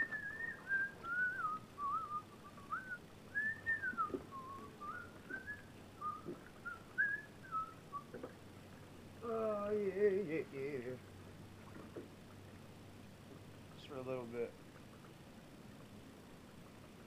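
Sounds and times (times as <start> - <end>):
person whistling a tune: 0.0 - 8.1.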